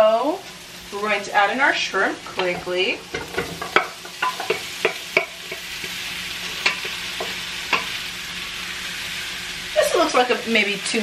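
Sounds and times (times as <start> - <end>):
shrimp sizzling in oil: 0.0 - 11.0.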